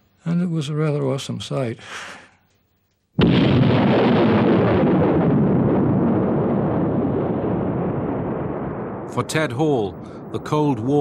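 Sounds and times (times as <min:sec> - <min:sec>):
explosion blast rumbling: 0:03.2 - 0:11.0.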